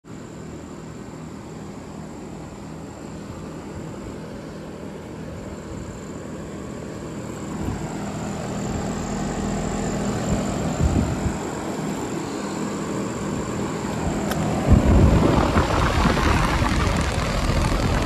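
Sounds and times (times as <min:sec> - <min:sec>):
compressor hum: 0:00.1 - 0:18.0
condenser fan whoosh: 0:00.1 - 0:18.0.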